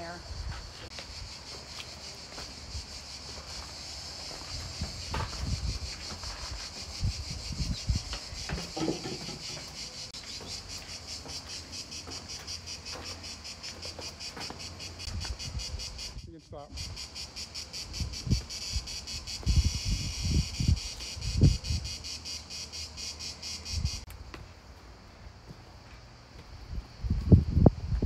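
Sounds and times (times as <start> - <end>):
insects chirring: 0.0 - 28.0
footsteps on stone path: 0.4 - 15.4, 24.1 - 27.3.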